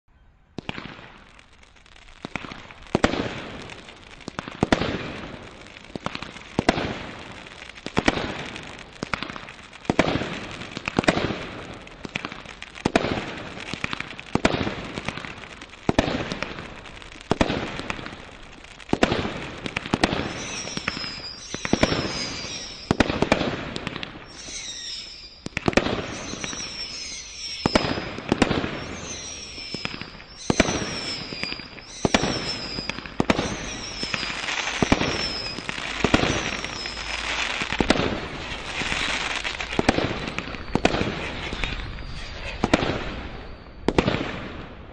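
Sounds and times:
firework shots bursting: 0:00.6 - 0:44.8
falling high whistles: 0:20.2 - 0:23.0, 0:24.3 - 0:28.0, 0:28.7 - 0:37.7, 0:38.4 - 0:43.9.

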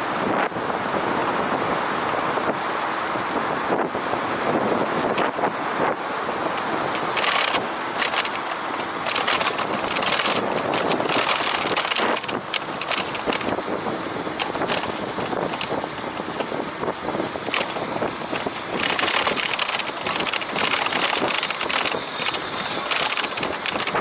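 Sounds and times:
bicycle tyres rolling on path: 0:00.0 - 0:24.0
wind rushing over microphone: 0:00.0 - 0:24.0
short clicks and rattles: 0:06.5 - 0:13.6, 0:17.4 - 0:24.0
thin steady high tone: 0:19.9 - 0:23.6.

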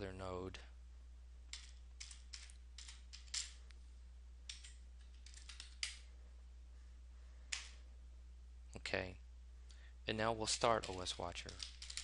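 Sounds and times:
steady low hum: 0:00.0 - 0:12.0
keyboard keys clicking: 0:10.8 - 0:12.0.

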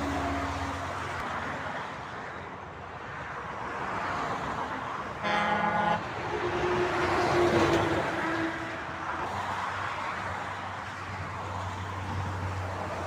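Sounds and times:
diesel truck engine drone: 0:00.0 - 0:03.6.

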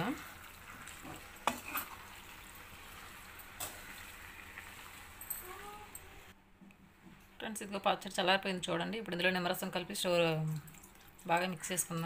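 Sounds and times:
faint sizzle in pan: 0:00.0 - 0:06.4.

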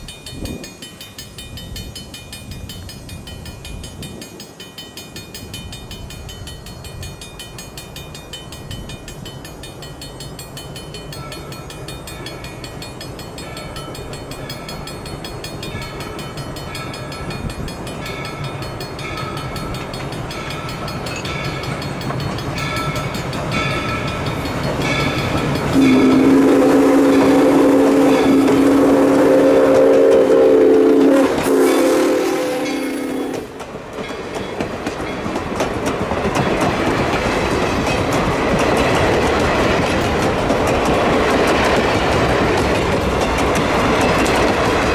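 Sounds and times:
locomotive bell ringing: 0:00.0 - 0:35.5
steam whistle blowing: 0:25.8 - 0:33.6.

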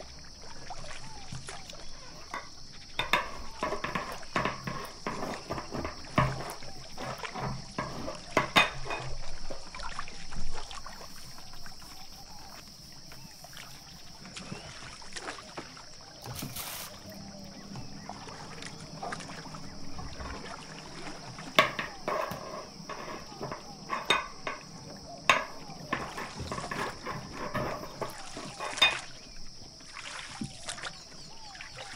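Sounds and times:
hands brushing dough: 0:16.4 - 0:17.0.

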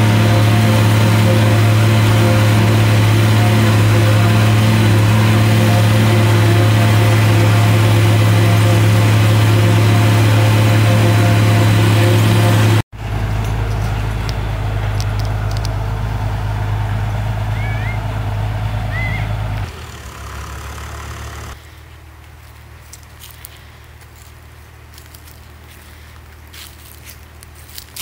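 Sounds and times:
tractor engine and chopper drone: 0:00.0 - 0:21.7.

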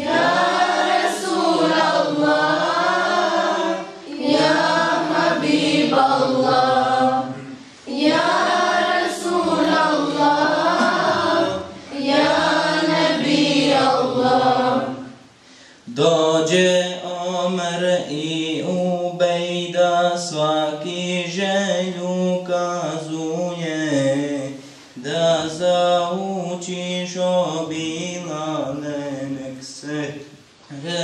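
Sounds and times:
man singing devotional hymn: 0:15.8 - 0:31.0.

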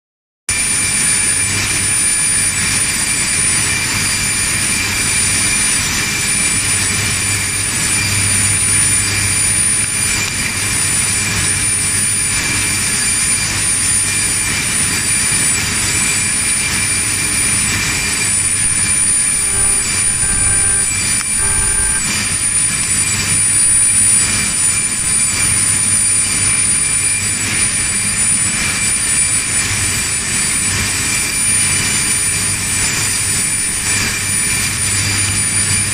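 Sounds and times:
factory machinery roar: 0:00.5 - 0:35.9
short pitched tones: 0:17.9 - 0:25.1.

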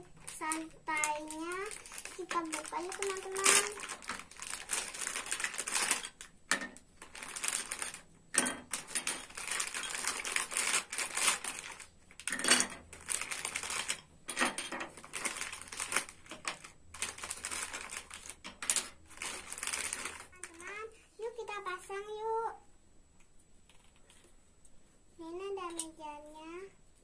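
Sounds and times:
plastic bag crinkling: 0:00.0 - 0:20.8.

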